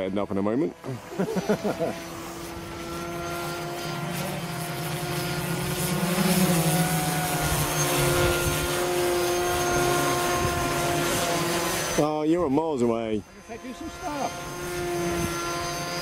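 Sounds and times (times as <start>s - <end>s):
model aircraft propellers buzzing: 0.0s - 16.0s.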